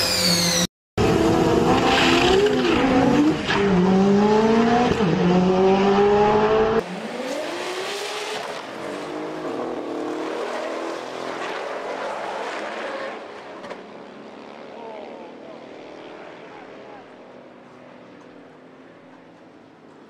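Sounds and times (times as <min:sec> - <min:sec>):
distant drag race engines: 0:00.0 - 0:20.0
car engine revving hard: 0:01.0 - 0:13.2.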